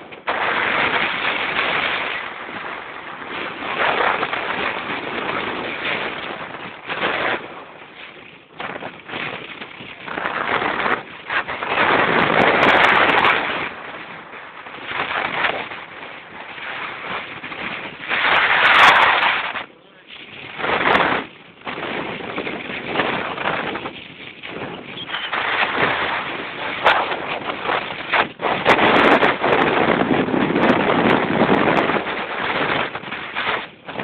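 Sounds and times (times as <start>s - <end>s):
road noise: 0.0s - 34.0s
wind buffeting microphone: 0.0s - 34.0s.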